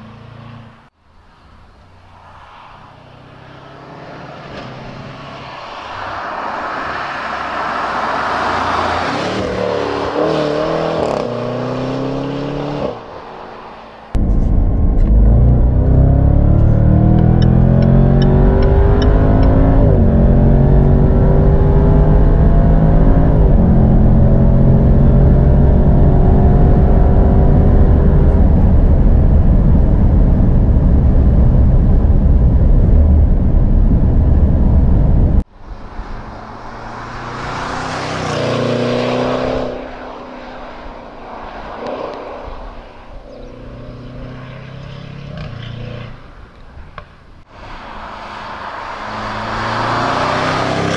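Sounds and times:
car passing by roadside: 0.0s - 21.8s, 35.5s - 50.9s
car engine accelerating in cabin: 14.1s - 35.5s.

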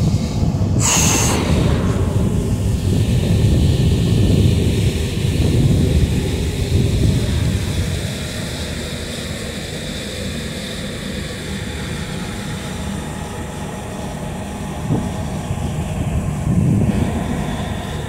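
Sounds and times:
wind buffeting microphone: 0.0s - 8.7s, 14.6s - 18.0s
boat engine rumbling: 1.5s - 10.1s, 11.0s - 18.0s.

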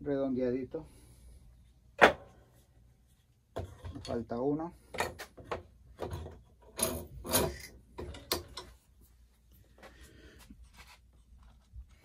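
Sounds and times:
wood clamped in metal vise: 3.6s - 9.0s.

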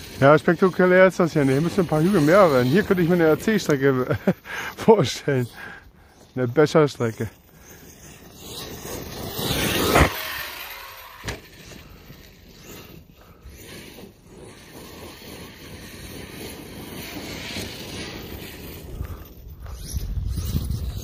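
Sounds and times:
rc truck motor and tyres rushing: 0.0s - 21.0s.

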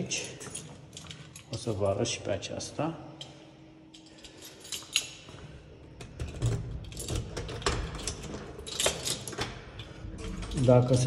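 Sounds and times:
keys jangling: 0.0s - 1.8s, 3.2s - 11.0s
lock and handle clicks: 6.0s - 10.6s.

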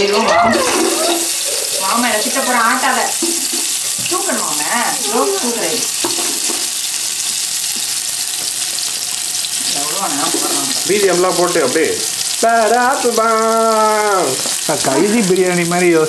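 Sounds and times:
onions sizzling in oil: 0.0s - 16.0s
person speaking: 9.6s - 16.0s.

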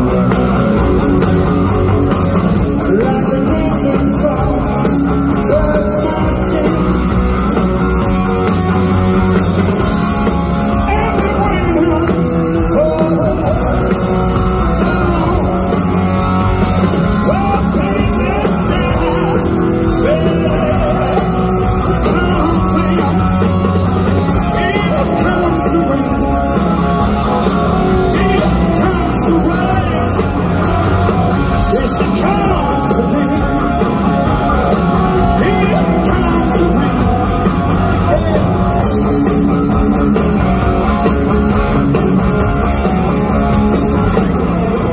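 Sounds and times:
electric guitar: 0.0s - 44.9s
live rock band playing: 0.0s - 44.9s
male lead vocal singing: 2.7s - 7.3s, 10.7s - 39.7s.

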